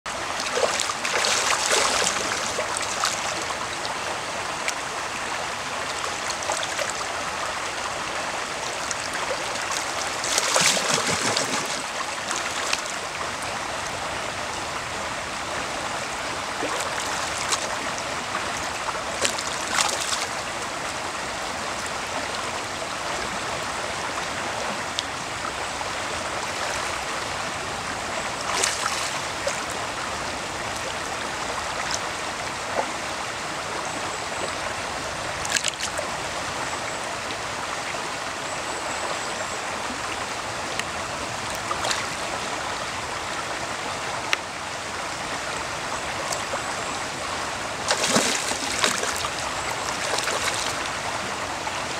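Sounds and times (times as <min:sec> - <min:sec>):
stream running over gravel: 0:00.1 - 0:38.4, 0:39.9 - 0:51.9
fish splashing: 0:00.4 - 0:03.4, 0:09.2 - 0:12.8, 0:47.8 - 0:50.8.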